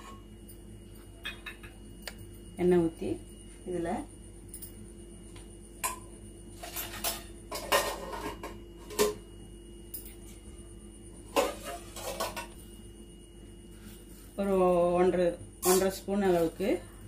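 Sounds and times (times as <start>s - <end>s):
kitchen utensils clinking: 6.6s - 9.2s, 11.4s - 12.6s, 15.6s - 16.0s.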